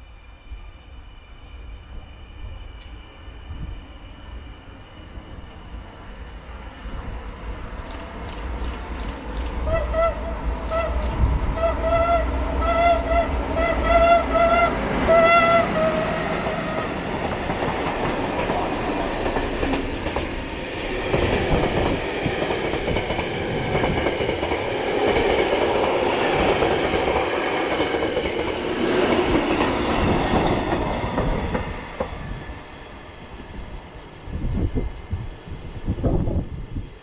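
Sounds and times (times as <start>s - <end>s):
train wheels rumbling on rails: 1.4s - 37.0s
locomotive horn: 9.7s - 16.9s.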